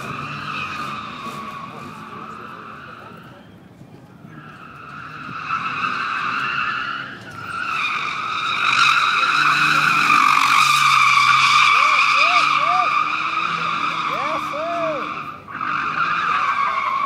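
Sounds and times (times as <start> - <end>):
tyres squealing: 4.3 - 17.0.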